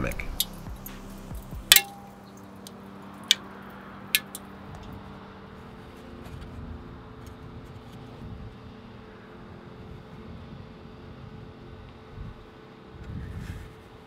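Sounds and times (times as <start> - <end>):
steady low hum: 0.0 - 14.0
ceramic mold cracking pings: 1.7 - 3.4.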